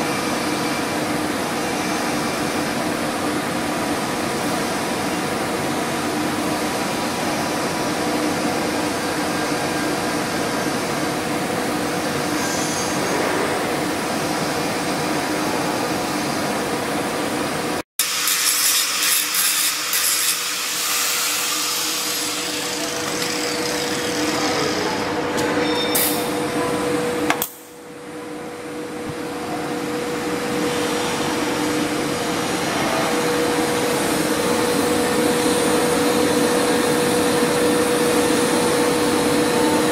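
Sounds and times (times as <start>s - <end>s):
welding arc hissing: 18.0s - 25.0s.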